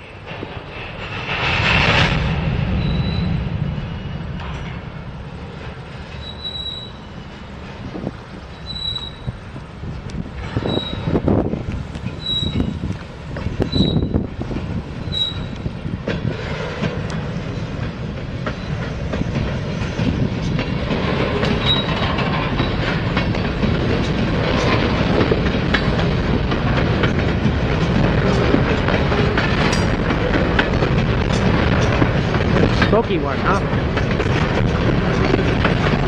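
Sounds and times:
train cars rolling past: 0:00.0 - 0:36.0
high flange squeals: 0:02.6 - 0:04.3, 0:06.1 - 0:07.6, 0:08.4 - 0:09.4, 0:10.5 - 0:11.2, 0:12.2 - 0:12.8, 0:13.6 - 0:14.3, 0:15.0 - 0:15.7
wheels clicking over rail joints: 0:04.4 - 0:36.0.

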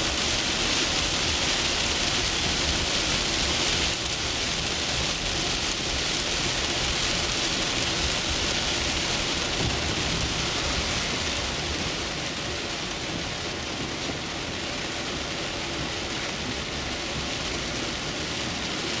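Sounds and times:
car road noise: 0:00.0 - 0:19.0
heavy rain on car roof: 0:00.0 - 0:19.0.

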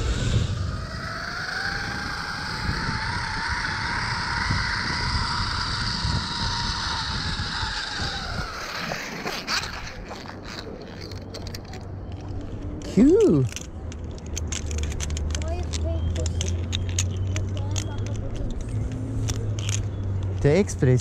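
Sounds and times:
zipline pulleys whining on cable: 0:00.0 - 0:13.7
wind rumble on microphone: 0:00.0 - 0:20.6.

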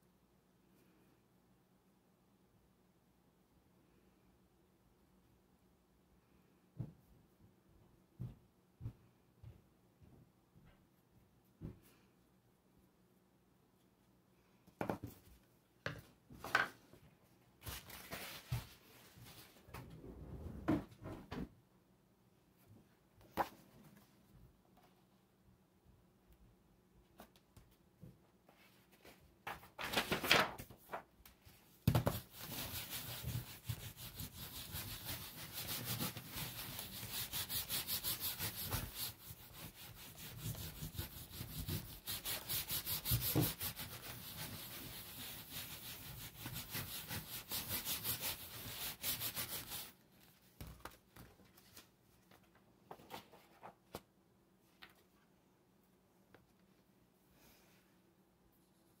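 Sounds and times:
paper rustle: 0:28.6 - 0:31.1.

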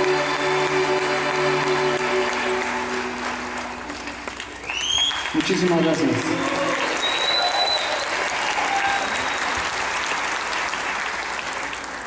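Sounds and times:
audience applauding: 0:00.0 - 0:12.0
short high whistle: 0:07.0 - 0:08.1.

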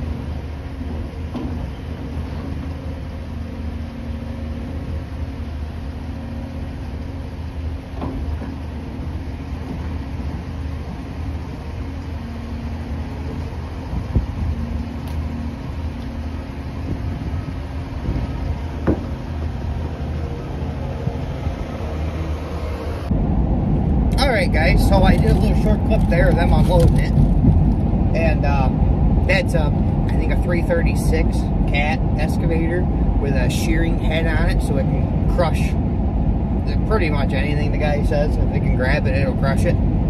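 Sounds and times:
diesel engine running: 0:00.0 - 0:40.0.

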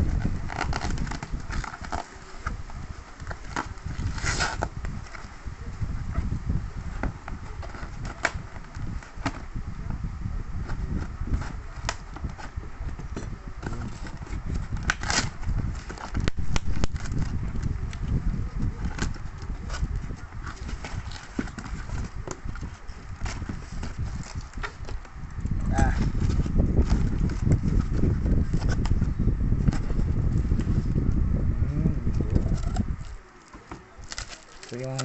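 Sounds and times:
cardboard and plastic rustling: 0:00.0 - 0:31.0, 0:32.2 - 0:35.0
steady low rumble: 0:00.0 - 0:33.3
cardboard rasp: 0:03.2 - 0:05.2, 0:13.6 - 0:17.3
scissors snipping cardboard: 0:13.6 - 0:17.3.

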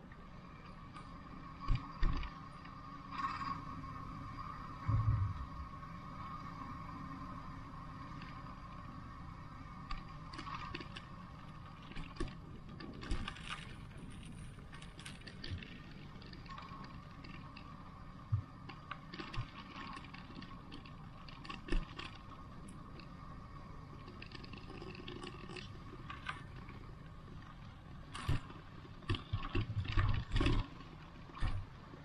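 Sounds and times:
background hum: 0:00.0 - 0:32.0
low rumble: 0:04.7 - 0:06.2.

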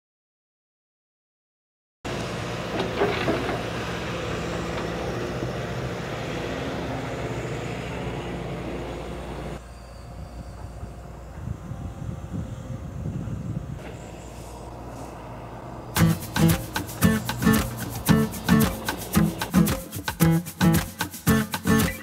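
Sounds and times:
digger engine running: 0:02.1 - 0:09.6, 0:13.8 - 0:22.0.

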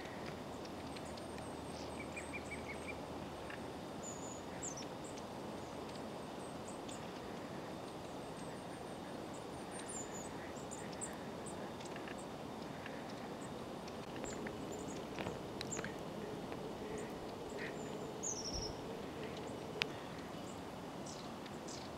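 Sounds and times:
forest ambience hiss: 0:00.0 - 0:21.9
high-pitched bird calls: 0:14.2 - 0:21.9.

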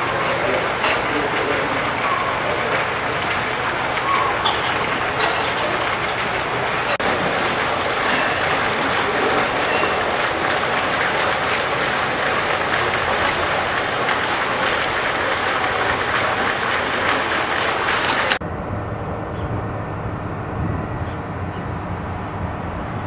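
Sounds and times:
fountain jets splashing into pond: 0:00.0 - 0:18.4.

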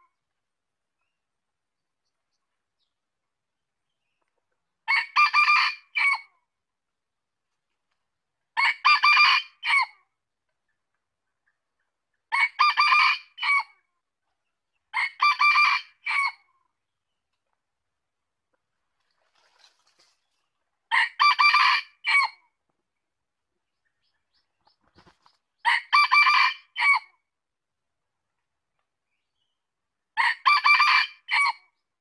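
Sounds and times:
rooster crowing: 0:20.9 - 0:22.3, 0:25.7 - 0:27.0, 0:30.2 - 0:31.6.

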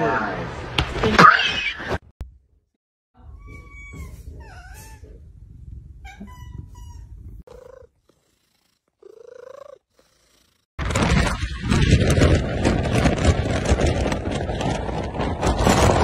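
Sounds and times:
cat meowing: 0:03.2 - 0:05.1, 0:06.0 - 0:07.9
steady low rumble: 0:05.1 - 0:06.1.

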